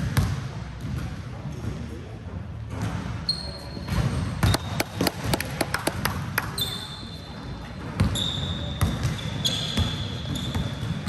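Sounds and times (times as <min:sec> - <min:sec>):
shoe squeaks: 0:03.3 - 0:05.1, 0:06.6 - 0:11.0
basketball bouncing on floor: 0:04.4 - 0:06.5.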